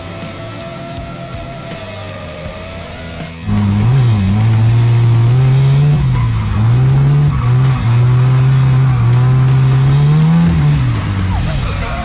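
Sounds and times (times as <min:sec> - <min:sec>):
car engine revving: 0:03.4 - 0:12.0.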